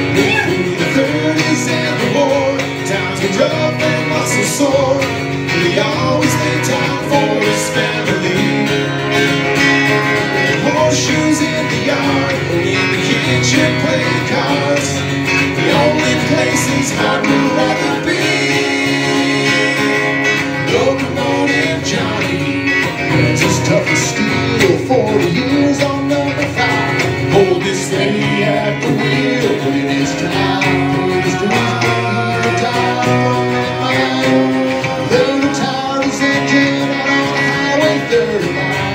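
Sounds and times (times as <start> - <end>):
acoustic guitar: 0.0 - 38.9
electric guitar: 0.0 - 38.9
several voices singing together: 10.3 - 24.2, 25.6 - 38.9.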